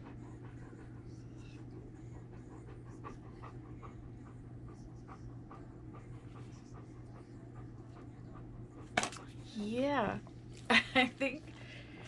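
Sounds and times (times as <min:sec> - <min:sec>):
dog panting: 0:00.0 - 0:09.5
steady low hum: 0:00.0 - 0:12.0.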